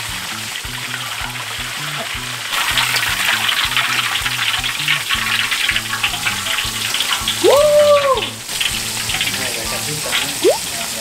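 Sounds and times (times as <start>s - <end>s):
background music with bass line: 0.0s - 10.7s
oil sizzling and crackling: 0.0s - 11.0s.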